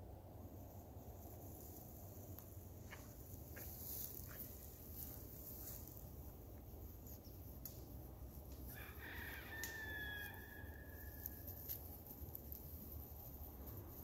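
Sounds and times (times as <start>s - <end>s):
rooster crowing: 8.7s - 11.8s.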